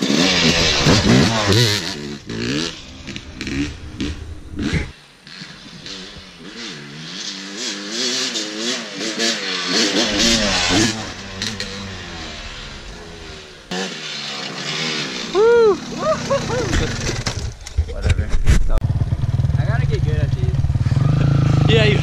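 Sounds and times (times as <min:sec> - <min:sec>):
dirt bike engine revving: 0:00.0 - 0:17.8, 0:18.8 - 0:22.0.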